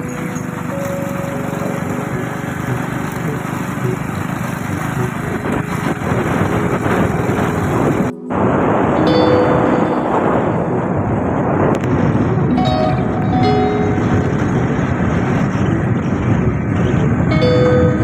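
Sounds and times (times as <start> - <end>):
small motorcycle engine running: 0.0 - 8.2, 12.3 - 18.0
wind rushing over microphone: 0.0 - 18.0.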